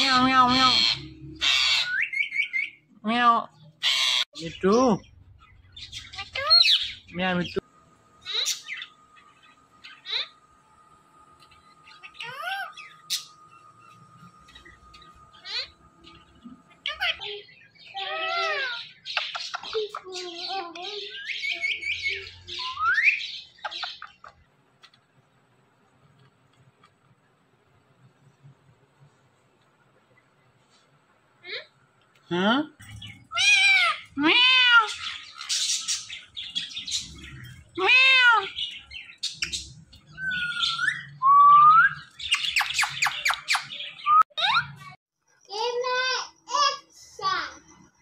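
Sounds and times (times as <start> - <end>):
parakeet calls: 0.0 - 2.8, 3.8 - 7.5, 8.2 - 10.5, 11.6 - 24.4, 32.8 - 41.2, 41.9 - 44.5
parakeet squawks: 0.0 - 2.8, 3.8 - 4.4, 5.8 - 7.0, 8.2 - 9.0, 9.8 - 10.4, 15.3 - 20.2, 33.3 - 37.1
parrots squawking and chattering: 0.0 - 7.6, 8.2 - 10.5, 11.5 - 24.5, 31.4 - 31.8, 32.8 - 45.0
rising whistles: 40.1 - 42.2.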